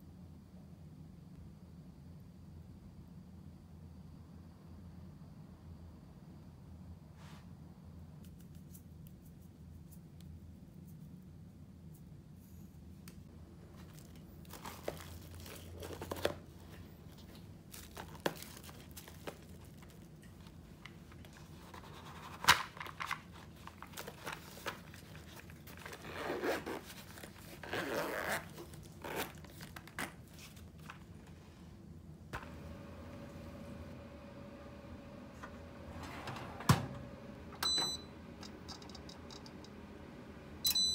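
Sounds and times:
crinkling of bag lining: 0:13.6 - 0:21.7, 0:22.3 - 0:31.2.

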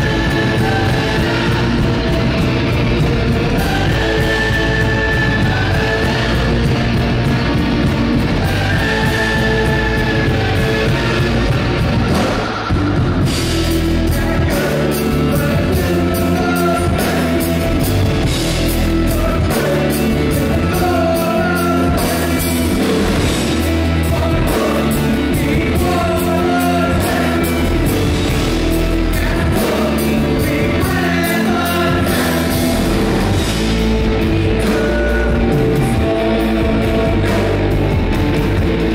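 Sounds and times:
bass guitar: 0:00.0 - 0:38.9
distorted electric guitars: 0:00.0 - 0:38.9
drum kit: 0:00.0 - 0:38.9.

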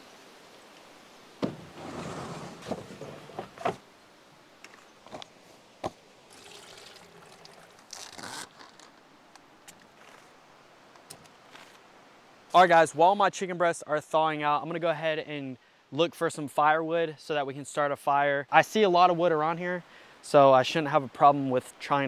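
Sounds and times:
water pouring into plastic tub: 0:06.3 - 0:08.2
plastic bag crinkling: 0:06.4 - 0:09.0.

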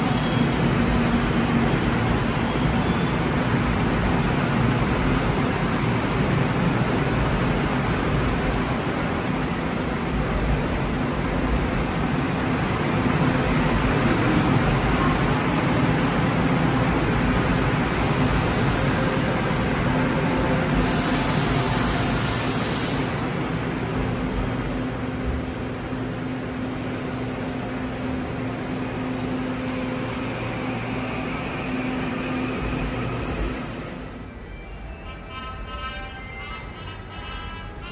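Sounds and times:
subway train wheels on rail: 0:00.0 - 0:37.9
short hiss of air: 0:20.7 - 0:23.4.

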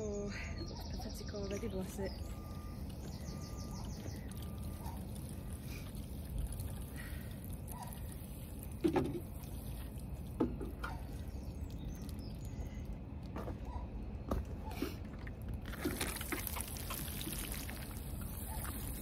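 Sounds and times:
water trickling from watering can: 0:01.5 - 0:13.0, 0:15.6 - 0:19.0.

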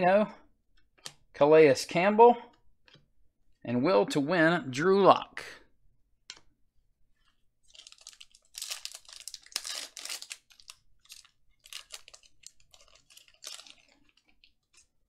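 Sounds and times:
foil wrapper tearing and crinkling: 0:07.7 - 0:14.9.

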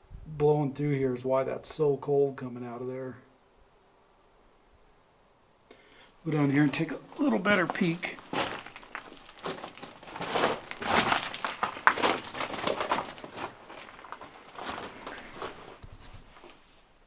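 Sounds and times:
footsteps on gravel: 0:06.3 - 0:16.5.

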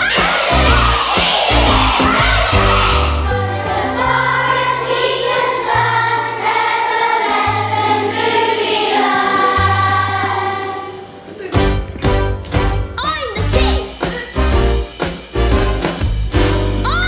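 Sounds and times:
children's choir singing: 0:00.0 - 0:11.5
instrumental accompaniment: 0:00.1 - 0:17.0.

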